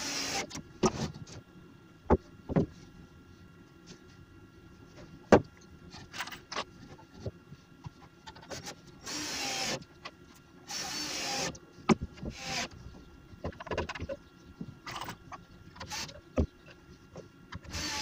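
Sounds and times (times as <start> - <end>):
drill driving screws into wood: 0.0 - 0.6, 9.0 - 9.8, 10.7 - 11.6, 12.3 - 12.8, 15.8 - 16.1, 17.7 - 18.0.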